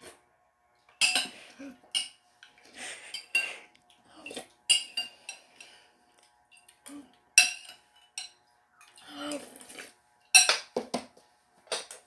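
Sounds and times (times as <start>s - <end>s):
metal spoon clinking on bowl: 7.4s - 9.0s, 10.3s - 10.6s.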